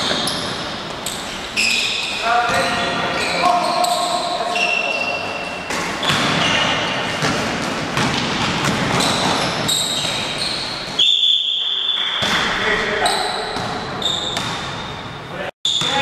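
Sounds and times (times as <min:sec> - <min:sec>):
echoing voices: 0:00.0 - 0:11.0, 0:12.2 - 0:16.0
sneakers squeaking on floor: 0:00.0 - 0:16.0
basketball bouncing on court: 0:05.3 - 0:16.0.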